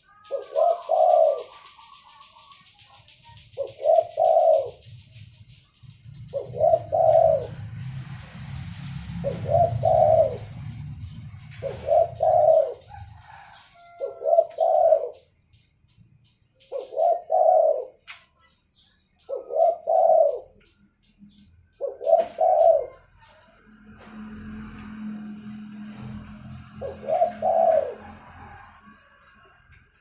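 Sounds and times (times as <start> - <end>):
dove cooing: 0.0 - 15.4, 16.6 - 18.2, 19.2 - 23.6, 24.2 - 29.2
low rumble: 5.0 - 12.2.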